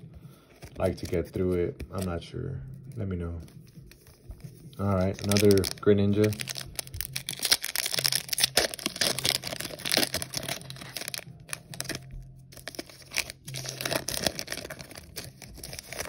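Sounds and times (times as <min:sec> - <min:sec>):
foil wrapper tearing and crinkling: 0:04.8 - 0:16.0.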